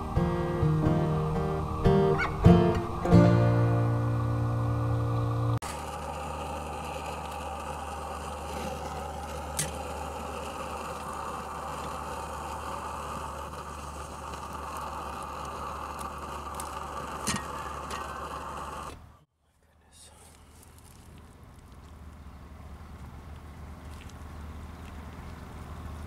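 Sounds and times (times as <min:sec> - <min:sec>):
camp stove burning with rushing noise: 0:00.0 - 0:19.0.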